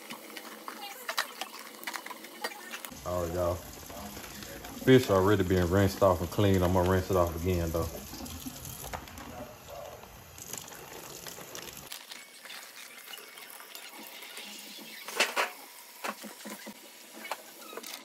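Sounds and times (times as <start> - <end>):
faucet running into steel sink: 3.1 - 9.2.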